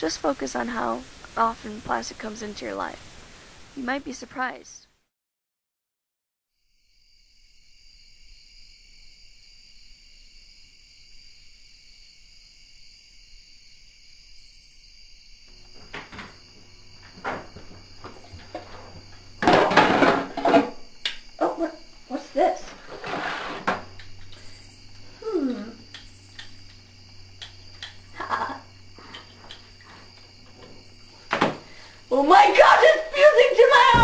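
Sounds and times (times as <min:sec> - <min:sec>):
loud clattering noise: 0:17.1 - 0:20.9, 0:33.7 - 0:34.0
high-pitched insect-like chirring: 0:20.4 - 0:33.9.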